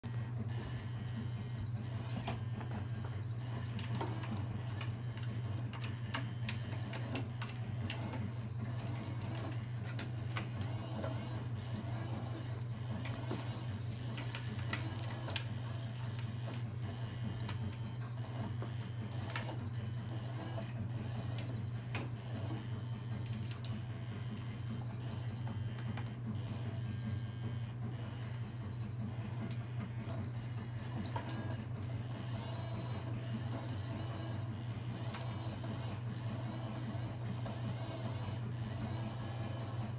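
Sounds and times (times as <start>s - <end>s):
steady low hum: 0.0s - 39.9s
kittens scampering and scratching: 13.0s - 18.1s.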